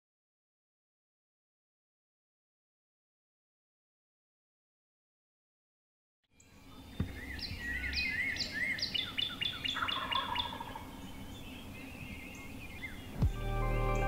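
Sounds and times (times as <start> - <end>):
songbirds chirping: 6.3 - 14.0.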